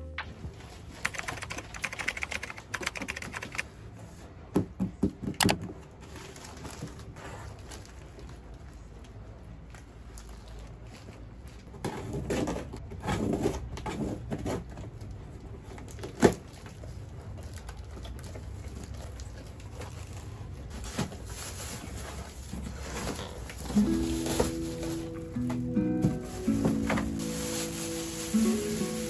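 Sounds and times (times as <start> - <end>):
packaging rustling and crinkling: 6.0 - 9.0, 15.8 - 29.0.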